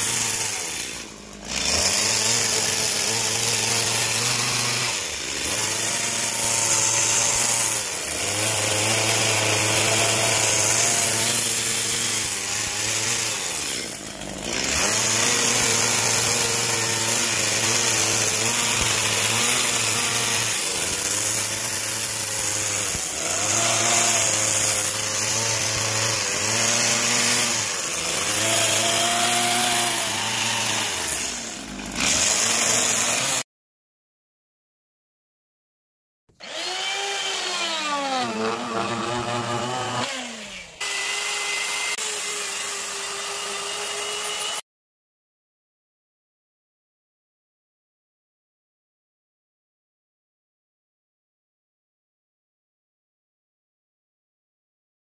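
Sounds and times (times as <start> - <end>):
chainsaw cutting wood: 0.0 - 33.5, 36.3 - 44.6.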